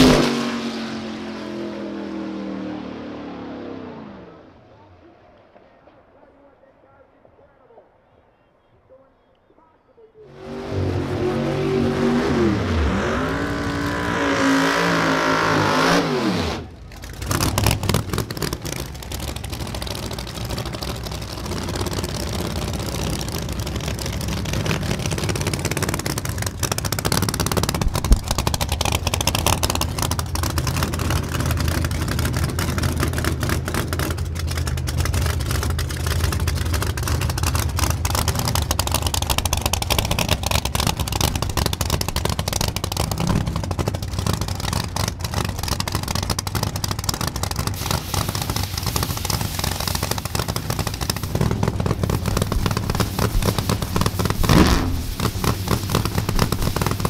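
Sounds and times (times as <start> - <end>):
race car engine at full throttle: 0.0 - 6.0, 10.2 - 57.0
race car engines idling roughly: 16.6 - 57.0.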